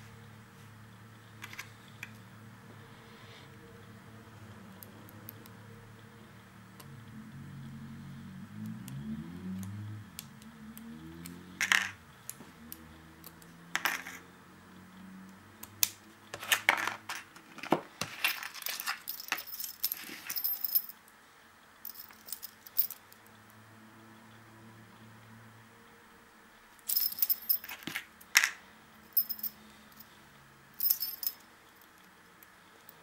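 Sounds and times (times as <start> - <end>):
padlock and metal picks clinking: 18.0 - 21.0, 21.9 - 23.2, 26.8 - 28.5, 29.1 - 30.1, 30.8 - 32.2.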